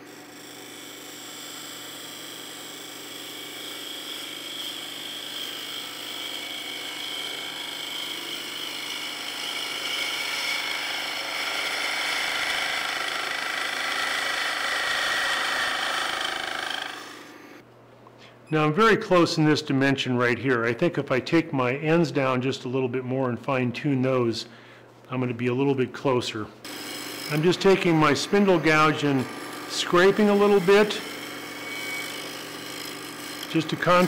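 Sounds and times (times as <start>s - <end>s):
lathe tool cutting wood: 0.0s - 17.6s, 26.7s - 34.0s.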